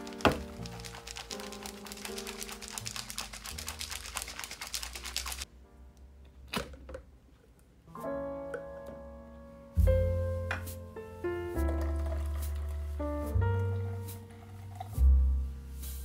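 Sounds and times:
plastic jug shaken rattling: 0:00.0 - 0:05.4, 0:11.7 - 0:12.8.

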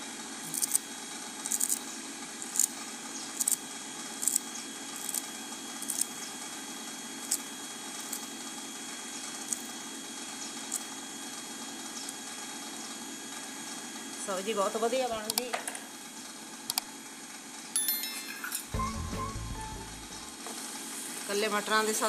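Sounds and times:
knife snipping herb stems: 0:00.5 - 0:00.8
steady hum: 0:17.8 - 0:22.0.

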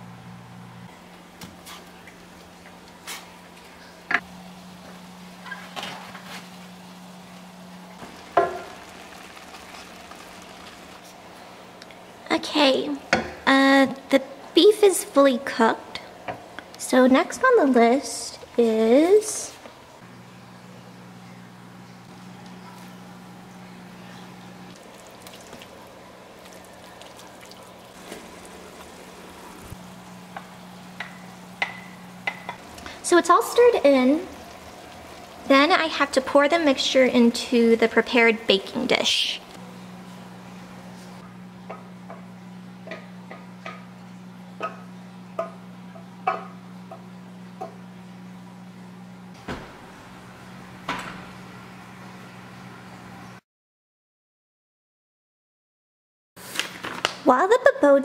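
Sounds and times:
meat and onions sizzling: 0:04.3 - 0:11.3, 0:24.8 - 0:37.6.

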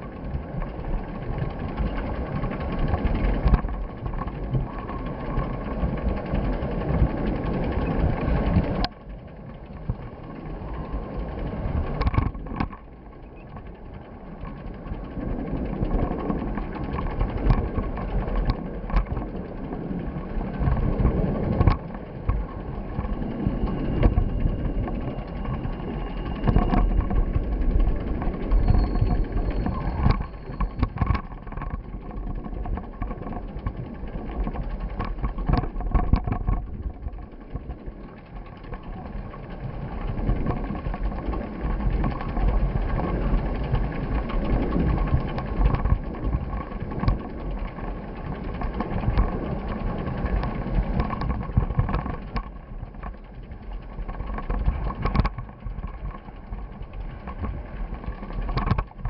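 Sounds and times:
wind buffeting microphone: 0:00.0 - 0:59.0
knocks and rattles: 0:26.4 - 0:37.7, 0:48.5 - 0:59.0.

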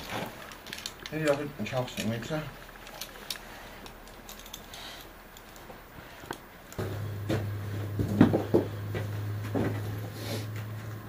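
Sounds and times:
metal climbing hardware clinking: 0:00.0 - 0:06.4
low hum: 0:02.4 - 0:11.0.

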